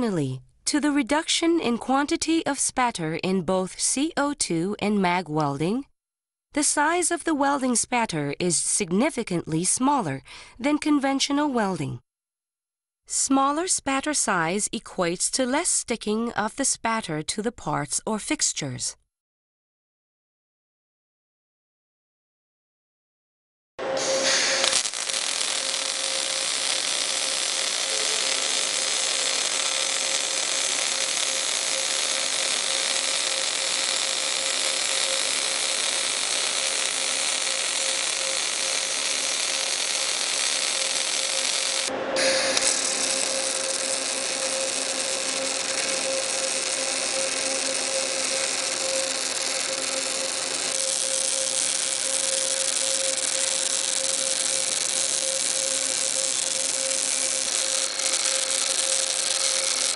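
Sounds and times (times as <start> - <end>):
steady tone: 23.8 - 59.9
welding arc crackling: 23.8 - 59.9.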